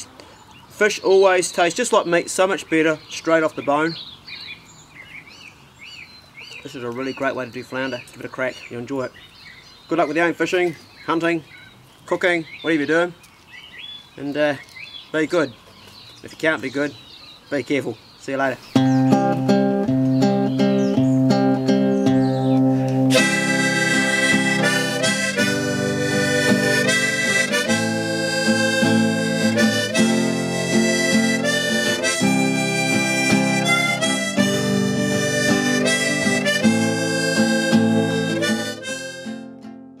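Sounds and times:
harmonica melody: 0:18.8 - 0:39.8
strummed acoustic guitar: 0:18.8 - 0:40.0.

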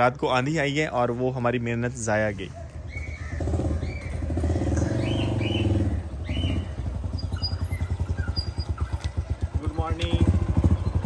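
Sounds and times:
birds chirping: 0:00.0 - 0:11.0
motorcycle engine running: 0:02.8 - 0:11.0.

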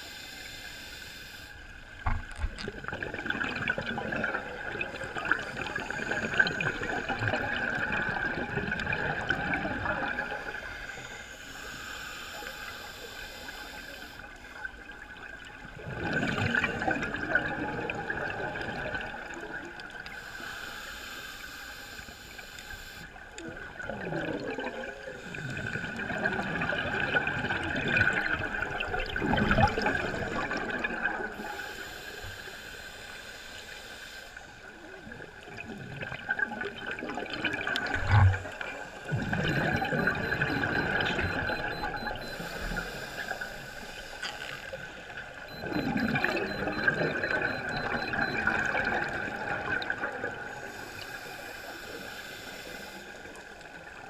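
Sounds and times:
diver exhaling bubbles underwater: 0:02.4 - 0:10.5, 0:15.8 - 0:19.2, 0:23.5 - 0:31.3.

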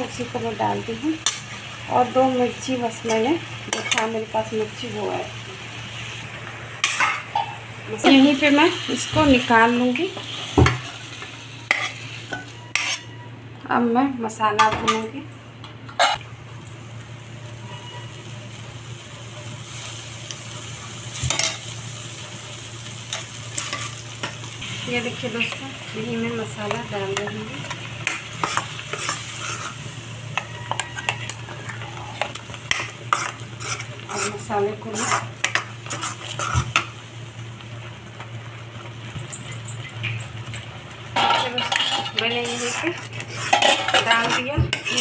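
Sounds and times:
butter sizzling in a pan: 0:00.0 - 0:13.1, 0:16.1 - 0:45.0
paste frying: 0:00.0 - 0:13.2, 0:15.9 - 0:45.0
spoon scraping a metal pan: 0:11.7 - 0:13.2, 0:16.0 - 0:16.2, 0:28.0 - 0:36.8, 0:41.2 - 0:45.0.

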